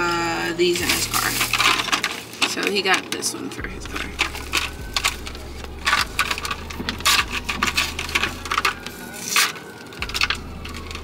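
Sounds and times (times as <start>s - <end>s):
low steady hum: 0.0s - 11.0s
plastic packaging clicks and rattles: 0.9s - 11.0s.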